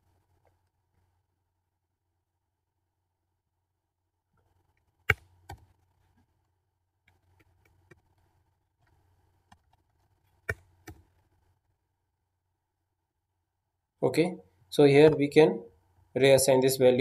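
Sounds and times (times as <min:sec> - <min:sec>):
keyboard and mouse clicks: 0:04.4 - 0:05.8, 0:08.8 - 0:11.2
faint keyboard tapping: 0:04.4 - 0:11.3.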